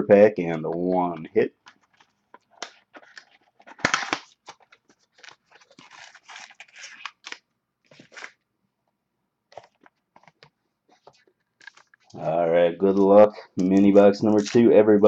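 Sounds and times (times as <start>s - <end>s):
packaging crinkling and tearing: 1.6s - 8.4s, 9.5s - 12.3s, 13.6s - 14.8s.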